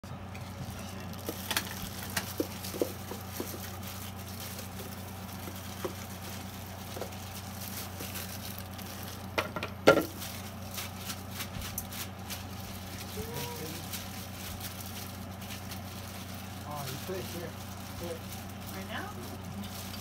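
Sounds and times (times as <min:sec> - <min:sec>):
steady low hum: 0:00.0 - 0:20.0
plastic tub knocking and rustling: 0:01.2 - 0:04.0, 0:09.3 - 0:10.3.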